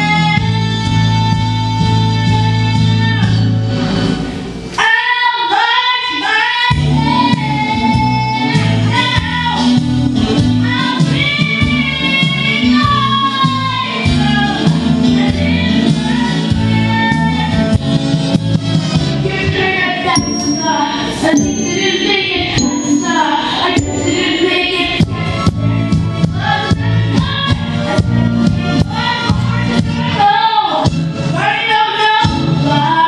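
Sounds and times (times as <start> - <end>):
girl singing into microphone: 0.0 - 3.4, 4.8 - 9.8, 10.6 - 17.8, 19.2 - 33.0
backing music: 6.7 - 33.0.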